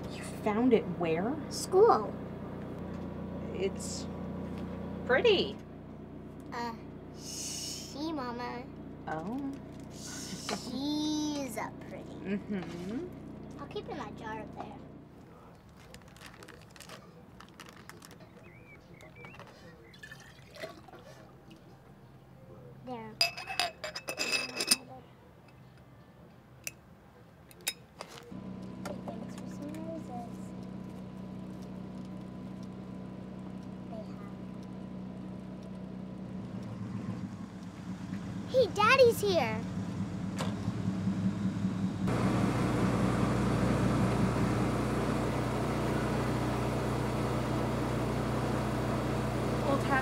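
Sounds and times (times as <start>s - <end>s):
car engine idling: 0.0s - 12.2s, 28.4s - 50.0s
glass jar clinking: 20.0s - 20.8s, 23.2s - 24.9s.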